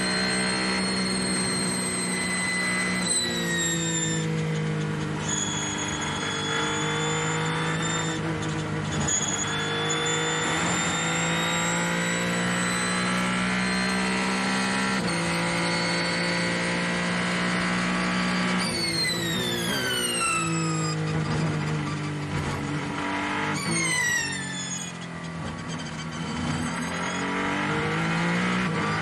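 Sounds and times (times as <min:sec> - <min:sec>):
race car engine at high revs: 0:00.0 - 0:29.0
wind and tyre noise: 0:00.0 - 0:29.0.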